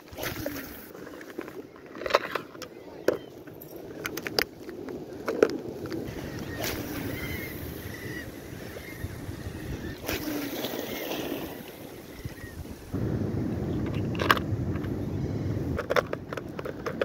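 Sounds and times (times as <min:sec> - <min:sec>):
wind buffeting microphone: 0:01.9 - 0:17.0
sea water washing against rocks: 0:05.0 - 0:13.0.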